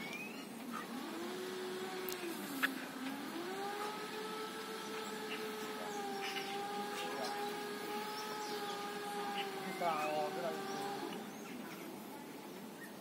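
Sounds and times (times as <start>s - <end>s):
motor whining: 0.0s - 12.0s.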